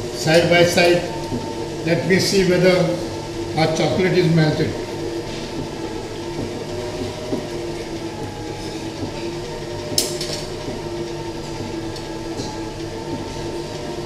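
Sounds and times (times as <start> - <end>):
stand mixer running: 0.0 - 14.0.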